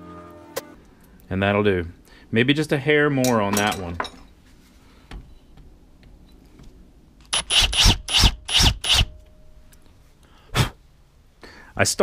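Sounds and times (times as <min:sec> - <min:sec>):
power drill drilling aluminum: 0:07.3 - 0:09.1.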